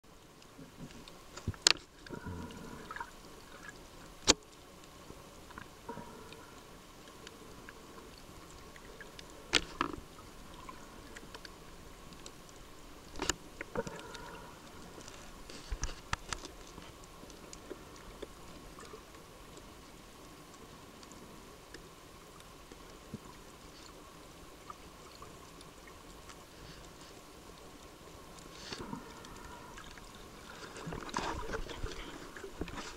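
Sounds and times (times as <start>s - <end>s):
sharp underwater clicks: 0.2s - 32.9s
underwater water hiss: 2.0s - 3.9s, 5.5s - 16.0s, 25.1s - 32.9s.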